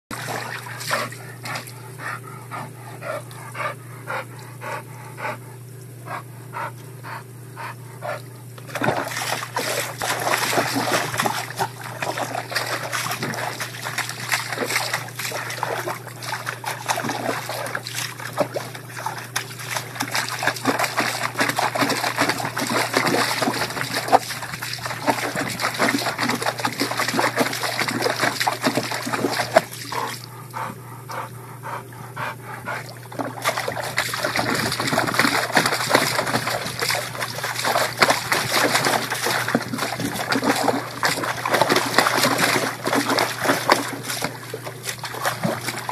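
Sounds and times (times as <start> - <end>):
dog splashing in water: 0.1 - 1.8, 8.7 - 30.3, 32.8 - 45.9
garden hose running into tub: 0.1 - 1.8, 8.7 - 30.3, 32.8 - 45.9.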